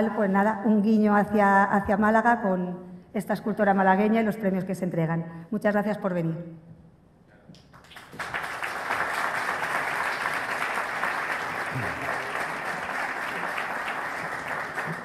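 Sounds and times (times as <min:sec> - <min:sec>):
audience applause: 0:07.8 - 0:15.0.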